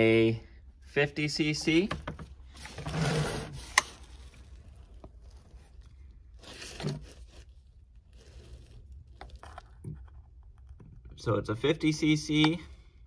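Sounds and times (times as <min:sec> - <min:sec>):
rustling scrape: 0:02.5 - 0:09.7.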